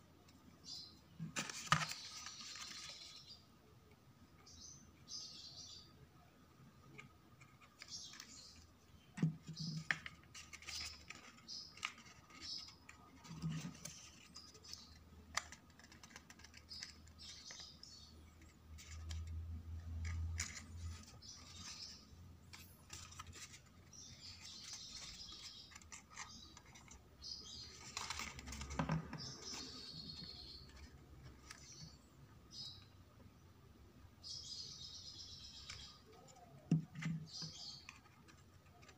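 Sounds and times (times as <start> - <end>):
soft paper rustling: 1.2 - 3.4, 6.9 - 32.1.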